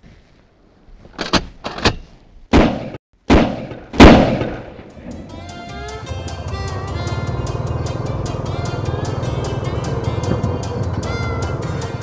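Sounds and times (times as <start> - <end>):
shotgun shots with echo: 2.5 - 4.9
music with steady beat: 5.1 - 12.0.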